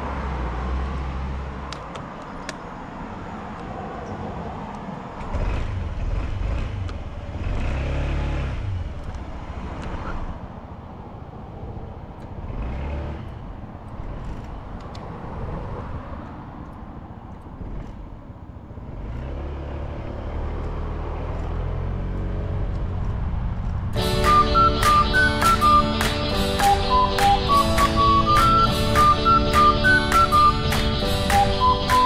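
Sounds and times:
road and wind noise: 0.0s - 32.0s.

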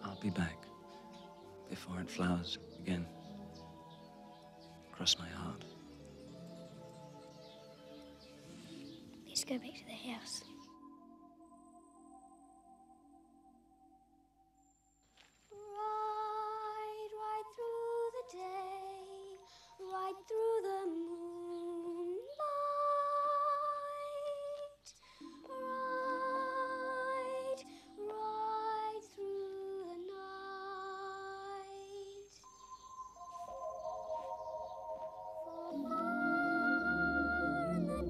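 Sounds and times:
solo voice singing slow melody: 15.6s - 32.5s, 33.6s - 38.0s.

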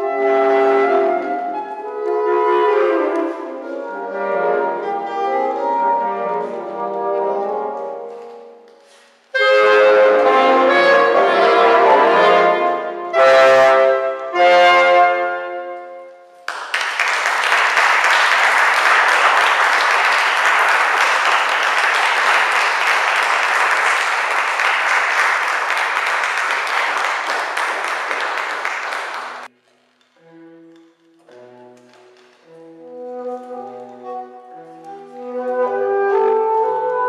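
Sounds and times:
saxophone quartet playing: 0.0s - 8.4s, 9.3s - 16.3s, 17.3s - 29.5s, 30.2s - 37.0s
audience applauding: 16.4s - 29.5s.

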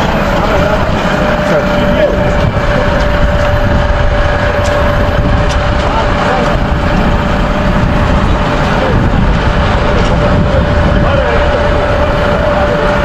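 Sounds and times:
diesel truck engine idling: 0.0s - 13.0s
thin whine: 0.0s - 13.0s.

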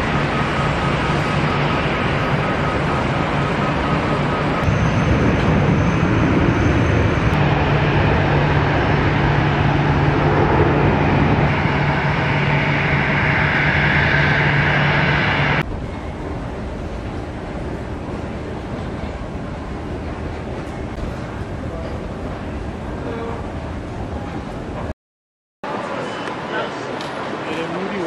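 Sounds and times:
aircraft and ground equipment running: 0.0s - 24.9s.

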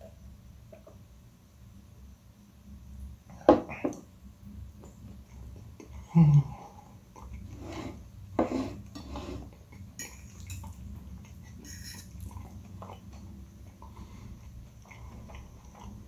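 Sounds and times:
fork clinking on glass plate: 11.6s - 12.2s.

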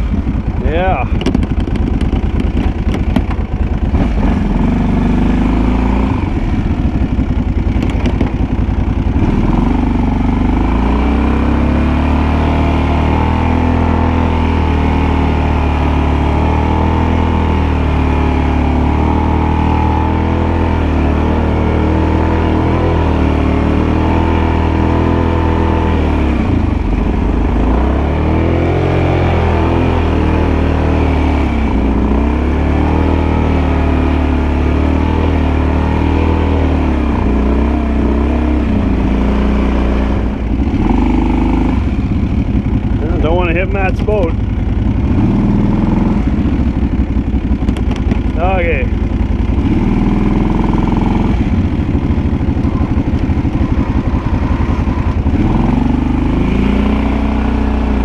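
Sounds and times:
atv engine running: 0.0s - 58.0s.

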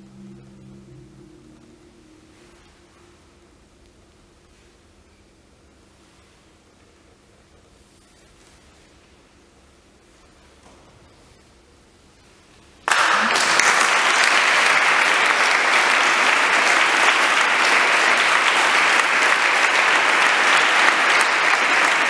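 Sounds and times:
audience applause: 12.9s - 22.0s.

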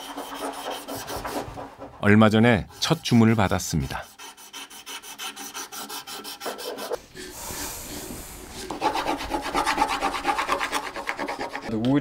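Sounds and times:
sandpaper rasping on wood: 0.0s - 1.7s, 2.6s - 7.0s, 8.6s - 11.7s.

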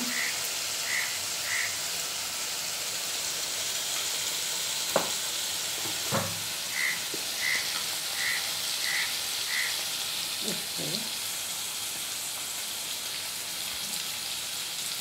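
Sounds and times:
vegetables sizzling in oil: 0.0s - 15.0s
metal spoon knocking on pan: 4.9s - 5.2s.

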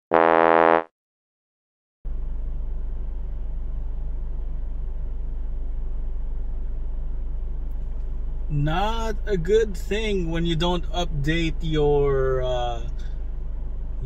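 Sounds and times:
car engine idling rumble: 2.1s - 14.0s.

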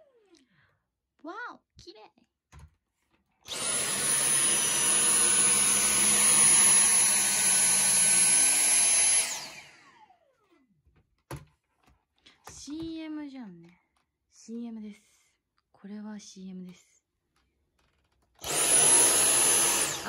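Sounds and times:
cordless vacuum whining: 3.4s - 10.5s, 18.4s - 20.0s.

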